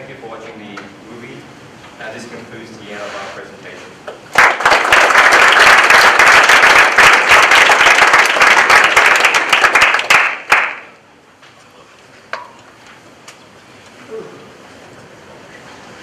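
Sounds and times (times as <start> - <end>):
audience applauding: 4.3 - 10.9.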